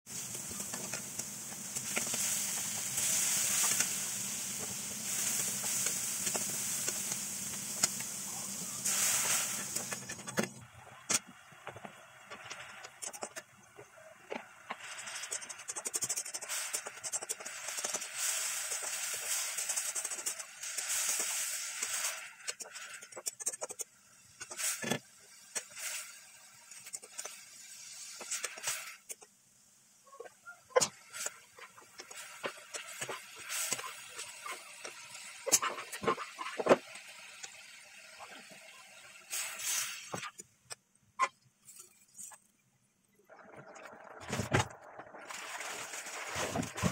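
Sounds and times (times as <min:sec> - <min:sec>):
paste sizzling and spluttering: 0:00.1 - 0:10.4, 0:14.7 - 0:23.8, 0:30.8 - 0:38.5.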